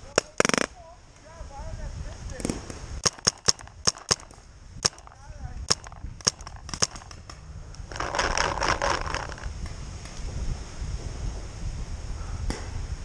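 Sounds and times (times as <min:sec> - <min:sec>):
paintball marker shots: 0:02.4 - 0:09.5.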